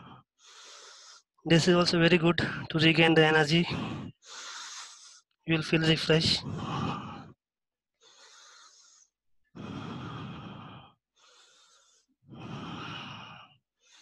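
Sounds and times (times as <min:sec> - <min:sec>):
deep slow breathing: 0:00.0 - 0:01.4, 0:03.7 - 0:05.4, 0:06.4 - 0:14.0.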